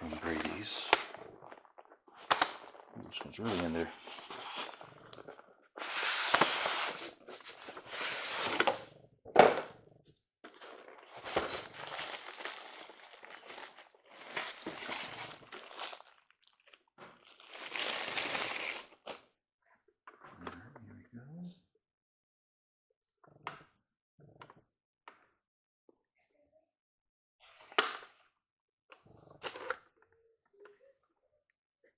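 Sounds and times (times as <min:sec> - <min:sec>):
packaging rustling and crinkling: 0:00.0 - 0:05.0, 0:05.8 - 0:08.8, 0:10.5 - 0:19.2.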